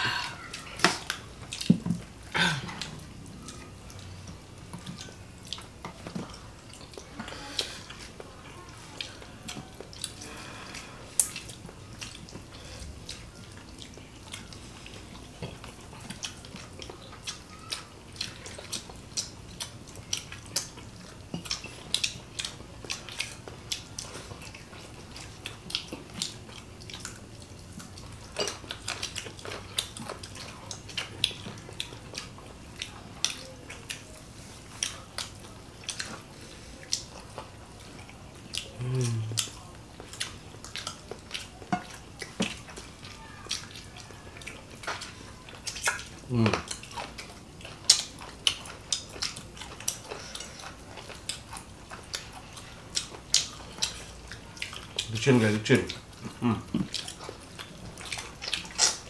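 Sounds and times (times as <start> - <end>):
chewing: 0.0 - 59.0
low vocal hum: 38.7 - 39.5.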